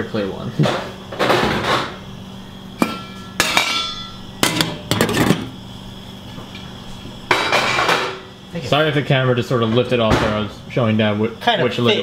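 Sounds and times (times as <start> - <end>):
metal pot lids clanking: 2.8 - 5.5.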